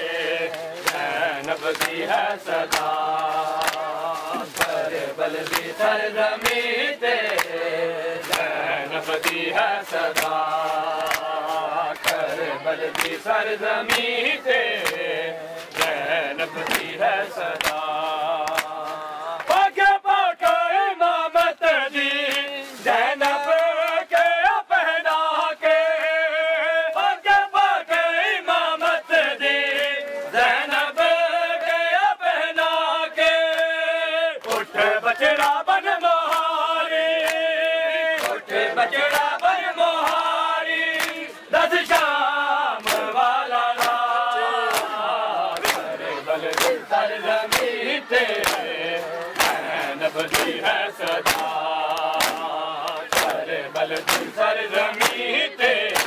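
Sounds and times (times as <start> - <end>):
men chanting a lament: 0.0 - 56.0
hands slapping chests: 0.3 - 19.8, 20.4 - 20.7, 22.2 - 24.4, 34.4 - 35.6, 36.2 - 37.5, 38.1 - 56.0.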